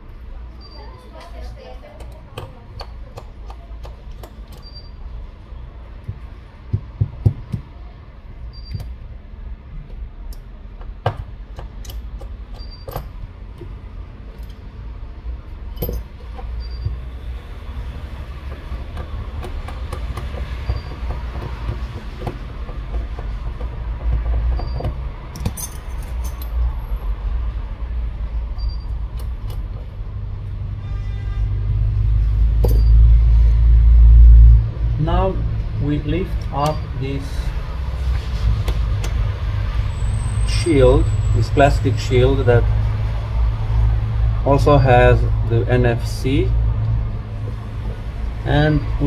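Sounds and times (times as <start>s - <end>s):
small metal tool clicks and taps: 2.0s - 4.7s, 10.3s - 13.8s.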